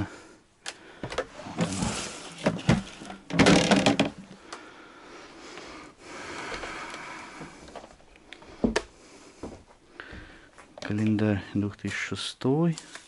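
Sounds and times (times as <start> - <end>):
scraping rustles: 1.3 - 3.8.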